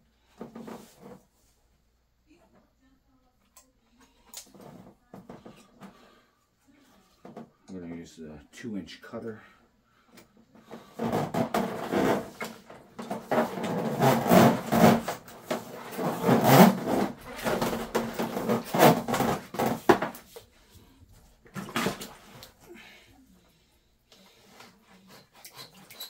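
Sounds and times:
steel cable rattling on concrete: 13.0 - 19.9.

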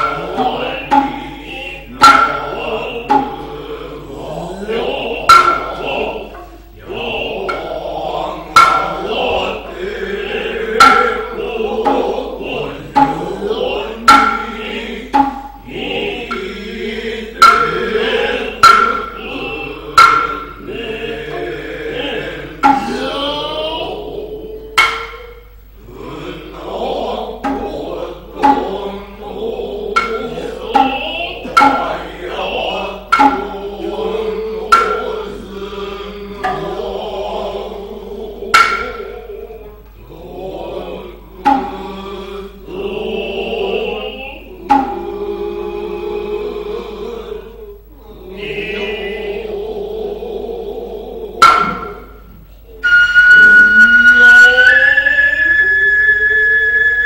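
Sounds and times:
hand drum strikes: 0.0 - 3.6, 4.6 - 6.6, 7.4 - 9.7, 10.5 - 16.6, 17.3 - 19.3, 19.9 - 21.5, 22.6 - 23.2, 24.8 - 25.5, 27.4 - 28.8, 29.9 - 32.3, 33.0 - 35.5, 36.4 - 36.8, 38.5 - 39.2, 41.4 - 41.8, 44.6 - 45.1, 51.4 - 52.4
vocal calls and chanting: 0.0 - 57.0
high shrill flute note: 51.5 - 57.0.

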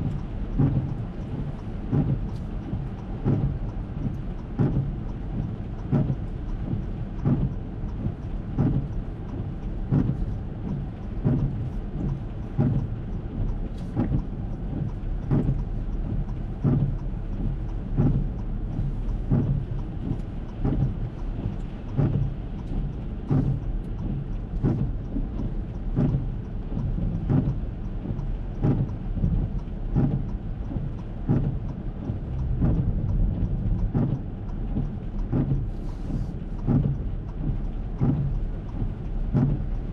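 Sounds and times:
low cabin rumble: 0.0 - 39.9
rain on car: 0.0 - 39.9
windshield wipers sweeping: 0.0 - 39.9
soft wiper thump: 28.1 - 34.2, 34.8 - 39.6.

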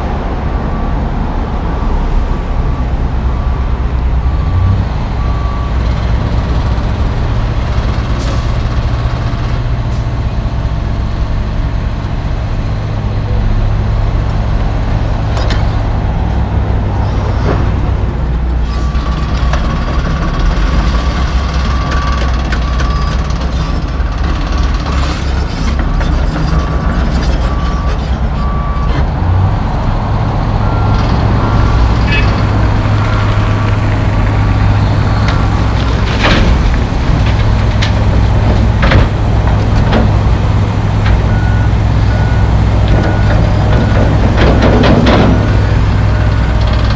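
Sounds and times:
diesel engines running: 0.0 - 46.9
reversing alarm beeping: 20.7 - 23.8, 26.4 - 29.0, 41.2 - 44.2
knocks and clunks: 30.7 - 46.9.

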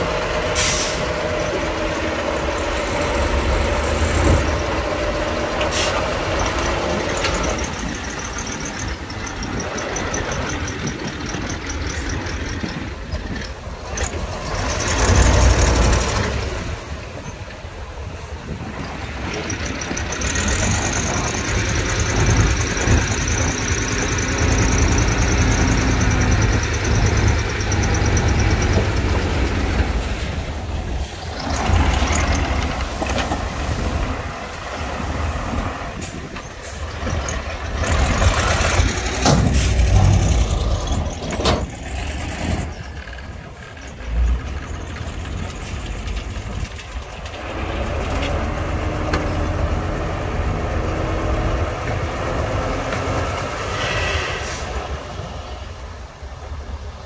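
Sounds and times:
heavy diesel machinery running: 0.0 - 57.0
hiss: 0.5 - 1.4, 5.5 - 6.9, 53.4 - 56.0
knocks and clanks: 36.4 - 43.3.

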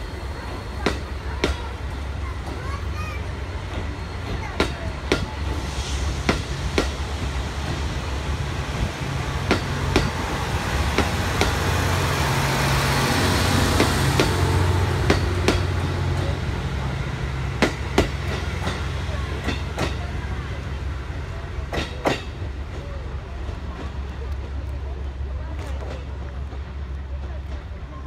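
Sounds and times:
train wheels clicking over rail joints: 0.1 - 28.0
hiss: 5.4 - 7.1.

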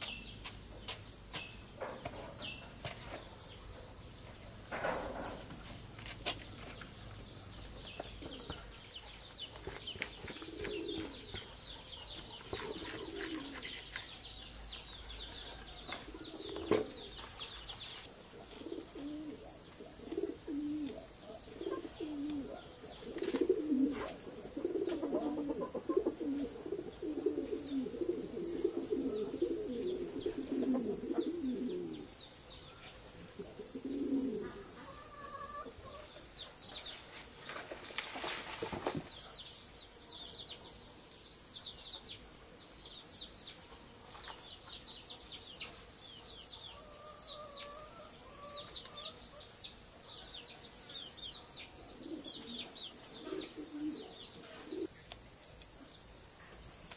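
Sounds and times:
low rapid bird calls: 6.7 - 32.8.

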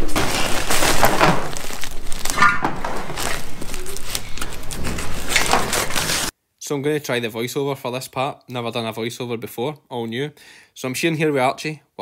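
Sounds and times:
plastic sack rustling and crinkling: 0.0 - 6.3.

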